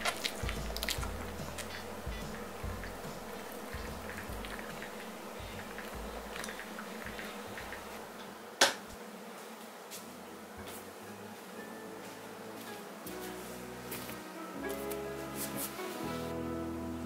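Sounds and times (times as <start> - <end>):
steady low hum: 0.0 - 8.5.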